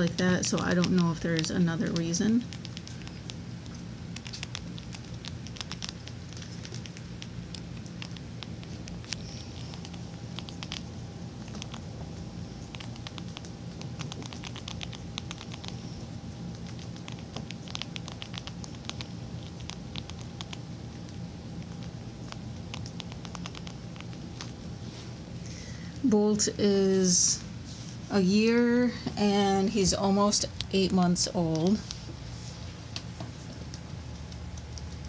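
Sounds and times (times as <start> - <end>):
rats crunching dry food: 0.0 - 24.8, 33.4 - 35.0.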